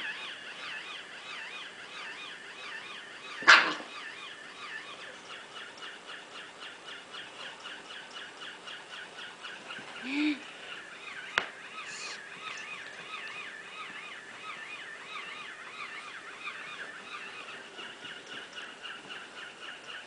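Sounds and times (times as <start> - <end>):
electronic toy chirping: 0.0 - 20.0
dog barking: 3.4 - 3.9.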